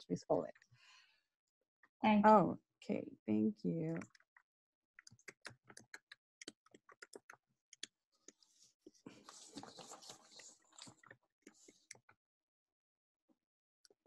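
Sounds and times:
keyboard typing: 0:05.0 - 0:07.9.

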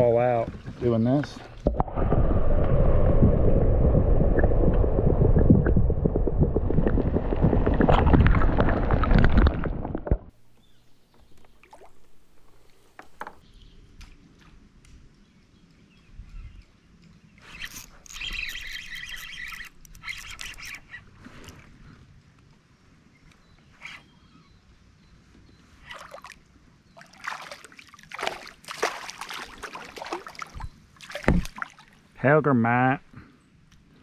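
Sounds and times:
river water sloshing underwater: 0:00.0 - 0:10.4, 0:11.2 - 0:12.8, 0:25.8 - 0:32.2
small splashes: 0:25.8 - 0:26.4, 0:27.0 - 0:32.2.

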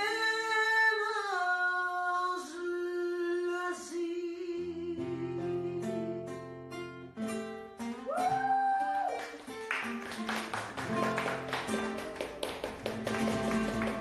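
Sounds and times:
classical guitar playing: 0:04.6 - 0:08.4, 0:09.2 - 0:14.0
hand claps: 0:08.2 - 0:14.0
percussive strums and taps: 0:09.4 - 0:14.0.

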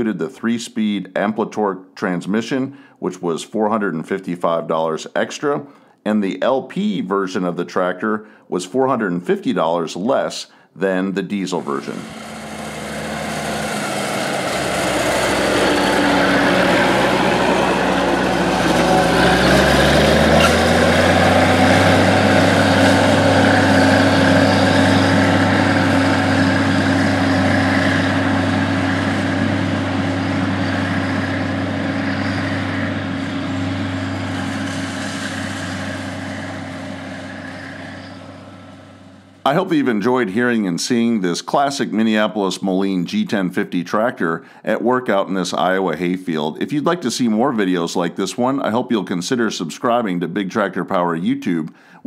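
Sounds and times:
tractor diesel engine running: 0:11.6 - 0:40.3.

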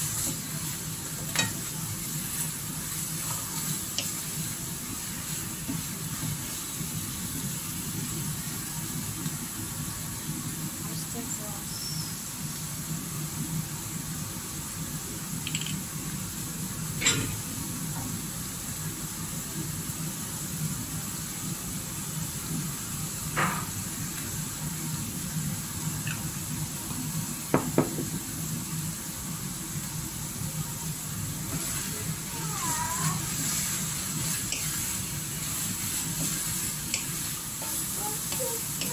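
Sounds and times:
meat and eggplant sizzling in wok: 0:00.0 - 0:38.9
spoon and bottle knocking on pan: 0:27.6 - 0:28.1.

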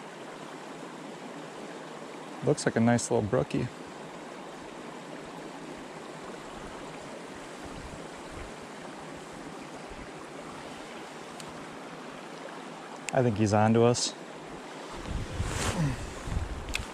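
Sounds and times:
creek water rushing: 0:00.0 - 0:16.9.

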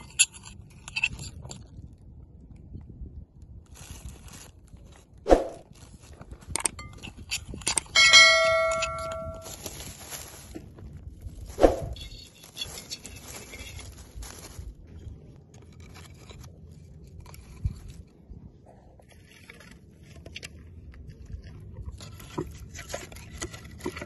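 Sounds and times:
metal pot clanging: 0:07.9 - 0:09.4.

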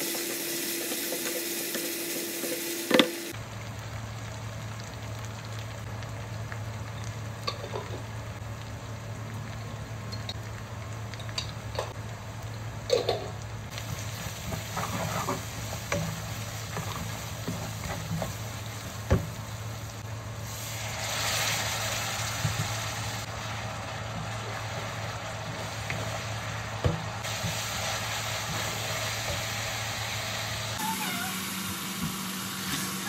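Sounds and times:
liquid hissing in a hot pan: 0:00.0 - 0:05.6, 0:13.7 - 0:33.0
masala sizzling in a wok: 0:00.0 - 0:33.0
spatula scraping a pan: 0:14.4 - 0:16.0.

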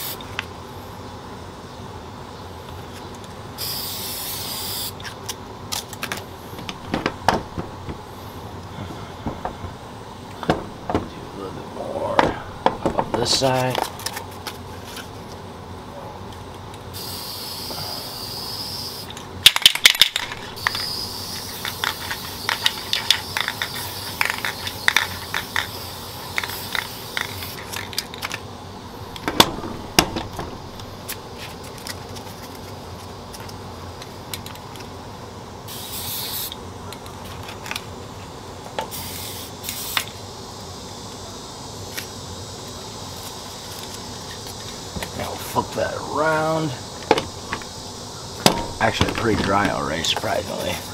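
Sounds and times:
spray paint hissing: 0:00.0 - 0:00.3, 0:03.6 - 0:11.4, 0:16.9 - 0:32.7, 0:35.7 - 0:37.8, 0:38.8 - 0:50.9
spray can ball rattling: 0:03.6 - 0:08.3, 0:18.6 - 0:28.5, 0:38.8 - 0:40.2.

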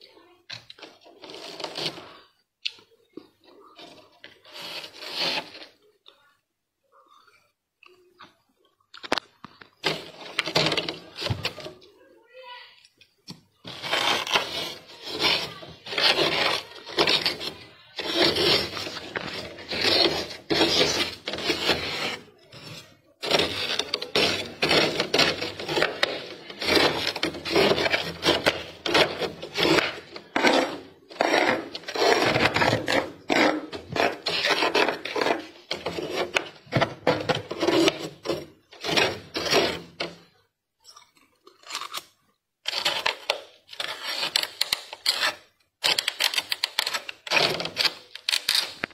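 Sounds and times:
frost scraped off inside freezer: 0:00.8 - 0:02.3, 0:03.8 - 0:05.8, 0:09.8 - 0:11.7, 0:13.6 - 0:40.2, 0:41.6 - 0:48.9.

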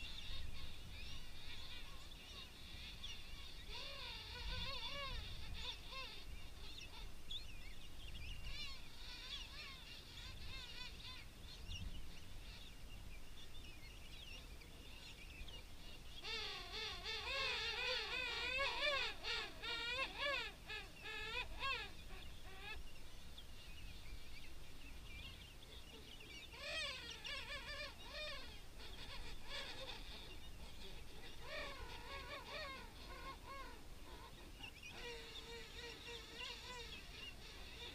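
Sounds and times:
penguins calling: 0:16.2 - 0:22.8, 0:26.5 - 0:37.9.

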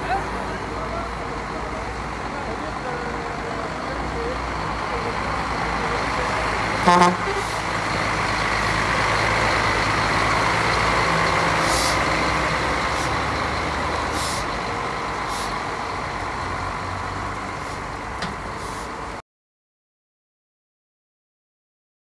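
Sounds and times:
diesel truck engines rumbling: 0:00.0 - 0:19.2
air brake hisses: 0:11.6 - 0:12.0, 0:14.1 - 0:14.5, 0:15.2 - 0:15.6, 0:17.6 - 0:17.9, 0:18.5 - 0:19.0.

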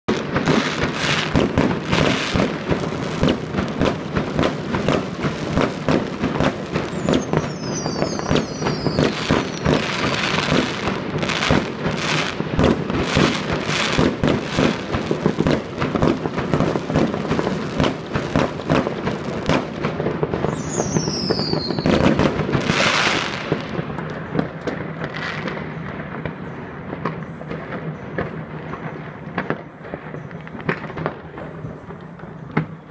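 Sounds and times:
fireworks crackling and banging: 0:00.1 - 0:32.9
falling firework whistles: 0:05.6 - 0:14.8, 0:20.4 - 0:23.6.

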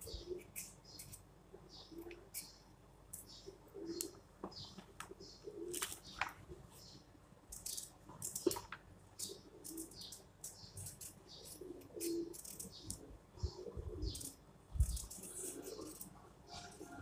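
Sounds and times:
knife scraping carrot skin: 0:14.1 - 0:16.8.

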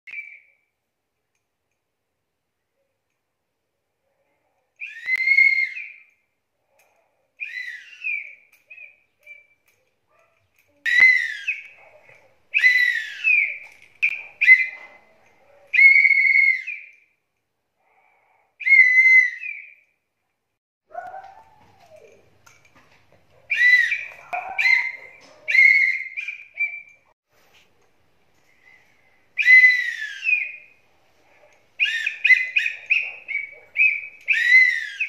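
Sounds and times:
toy whistle toots: 0:04.8 - 0:06.2, 0:07.4 - 0:09.5, 0:10.9 - 0:11.8, 0:12.5 - 0:14.9, 0:15.8 - 0:17.0, 0:18.6 - 0:19.8, 0:23.5 - 0:27.0, 0:29.4 - 0:30.7, 0:31.8 - 0:35.0.

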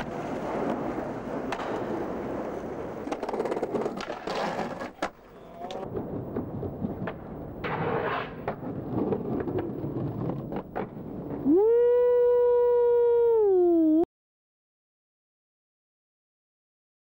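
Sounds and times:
skateboard grinding along handrail: 0:00.0 - 0:11.4
skateboard tail pops and landings: 0:00.0 - 0:11.4
skateboard wheels rolling on pavement: 0:00.0 - 0:11.8.

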